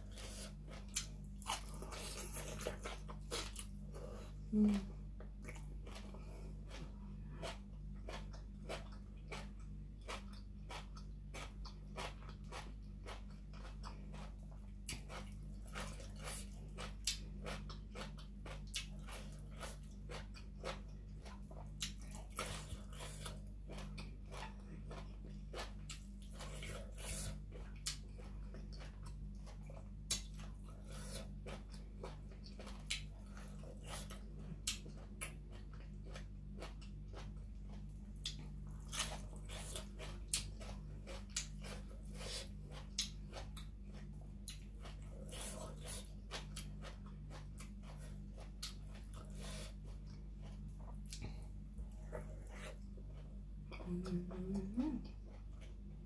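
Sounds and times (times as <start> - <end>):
chewing and crunching: 0.0 - 56.0
low hum: 19.0 - 56.0.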